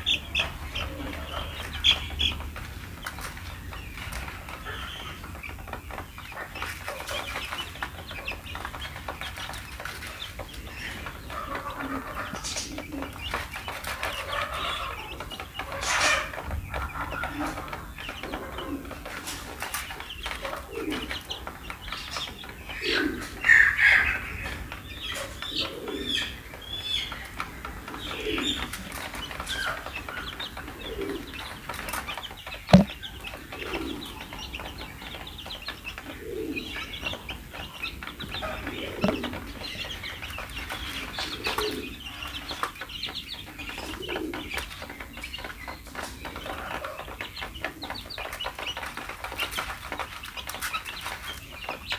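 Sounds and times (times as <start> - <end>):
chicks peeping: 0.0 - 51.9
beaks tapping on plastic tray: 24.3 - 51.9.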